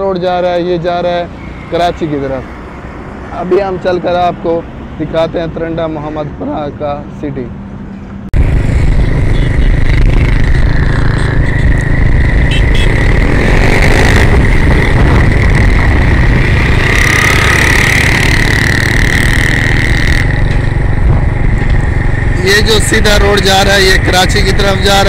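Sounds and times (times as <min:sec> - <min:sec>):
engine noise: 0:07.9 - 0:25.0
wind rumble on microphone: 0:08.4 - 0:22.4.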